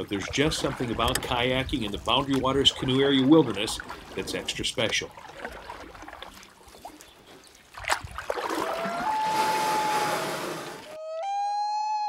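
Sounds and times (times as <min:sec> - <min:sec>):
water lapping: 0:00.0 - 0:11.0
loon wailing call: 0:08.7 - 0:12.0.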